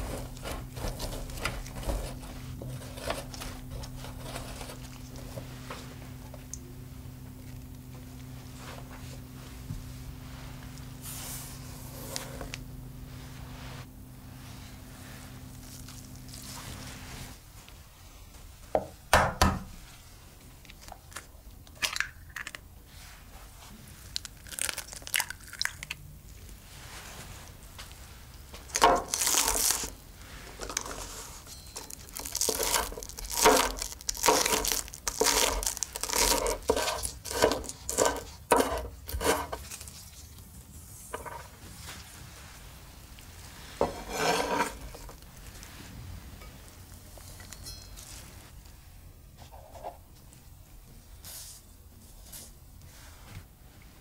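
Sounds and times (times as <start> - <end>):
knife slicing green onions: 35.2 - 39.6.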